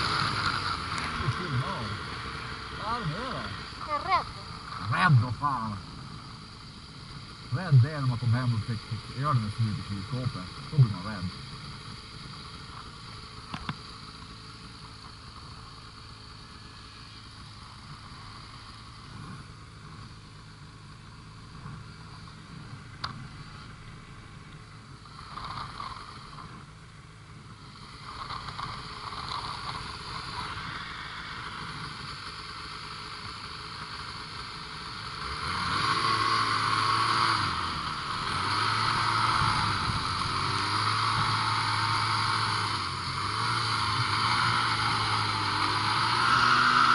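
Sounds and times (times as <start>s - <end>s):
snowmobile engine revving: 0.0s - 13.6s, 27.7s - 46.9s
snowmobile engine idling: 0.0s - 46.9s.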